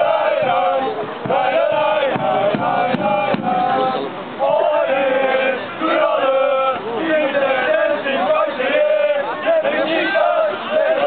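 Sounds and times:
crowd of men chanting a song: 0.0s - 11.0s
bass drum strikes: 1.2s - 3.8s.

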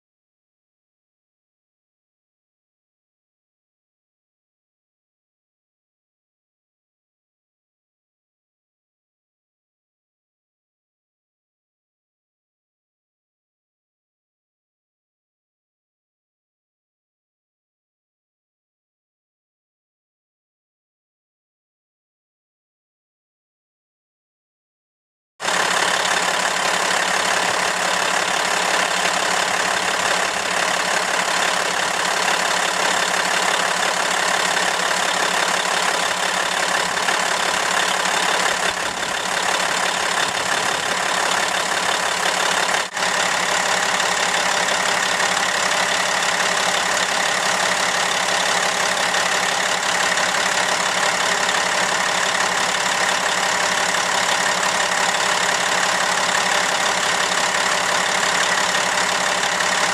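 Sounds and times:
diesel engine idling: 25.4s - 59.9s.

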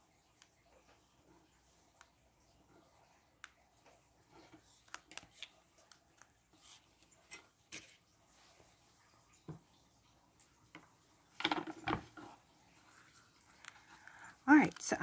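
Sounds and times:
salt crystals ticking on paper: 14.1s - 15.0s.

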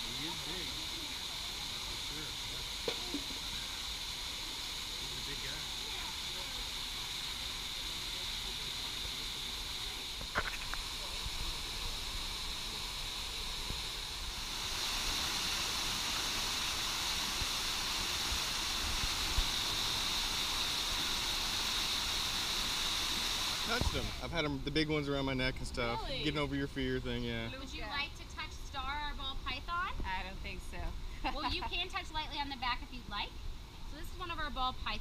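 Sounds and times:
waterfall pouring into pool: 0.0s - 28.0s
open-air background noise: 0.0s - 35.0s.

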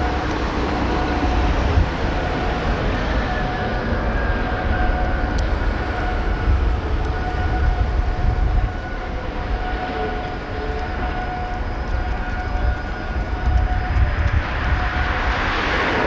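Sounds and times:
constant machinery whine: 0.0s - 16.0s.

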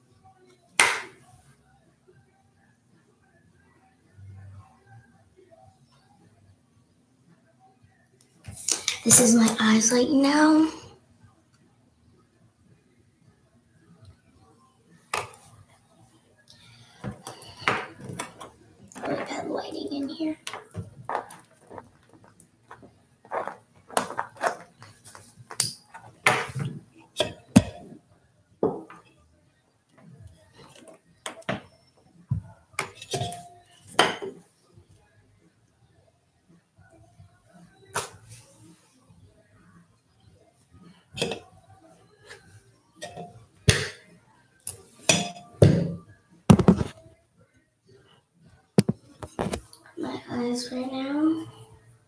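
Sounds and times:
small hard objects knocking: 20.4s - 26.6s
objects rattling together: 20.5s - 24.9s.

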